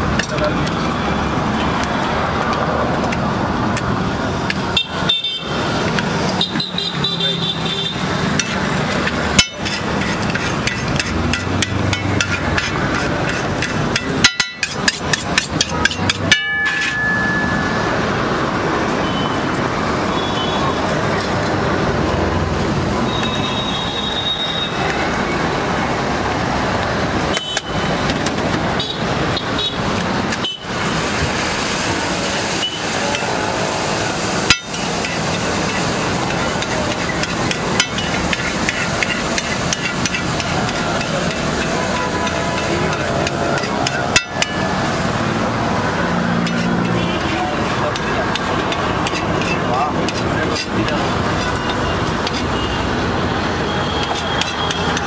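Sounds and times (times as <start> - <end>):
busy street traffic: 0.0 - 55.0
vehicle horn toots: 6.4 - 8.1
metallic clinks of cooking utensils: 13.6 - 17.6.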